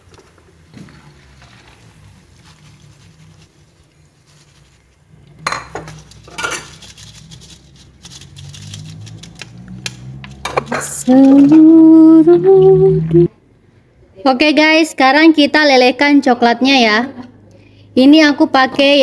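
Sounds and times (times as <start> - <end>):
utensils clinking and scraping wok: 4.3 - 11.8.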